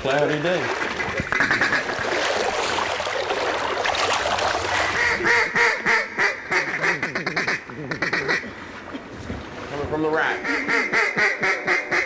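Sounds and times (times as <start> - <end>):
duck call quacking: 1.3 - 1.9, 4.9 - 8.4, 10.3 - 12.0.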